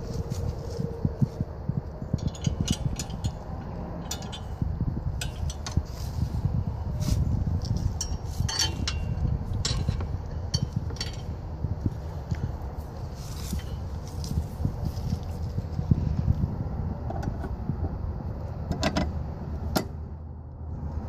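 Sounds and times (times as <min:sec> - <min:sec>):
wind on microphone: 0:00.0 - 0:21.0
metal hose couplers clicking: 0:02.2 - 0:06.2, 0:07.6 - 0:11.4.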